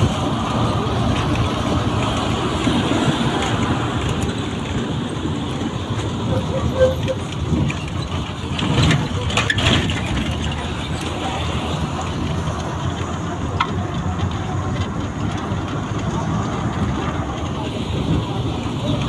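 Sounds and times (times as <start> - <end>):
road noise: 0.0 - 19.0
vehicle engine running: 0.0 - 19.0.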